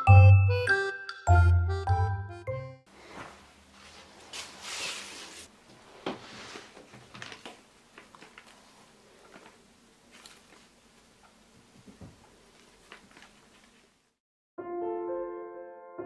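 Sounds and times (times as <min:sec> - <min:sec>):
tinkling music notes: 0:00.0 - 0:02.8
ribbon and paper rustling: 0:04.3 - 0:05.5, 0:06.5 - 0:10.8, 0:12.5 - 0:14.0.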